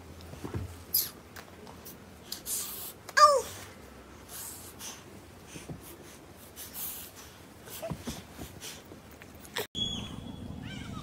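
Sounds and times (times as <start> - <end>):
breathy sniffs and snuffles: 4.2 - 9.0.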